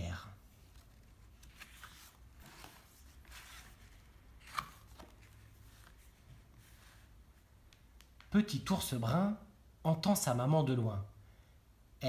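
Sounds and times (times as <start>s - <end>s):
book pages rustling: 0.4s - 8.3s.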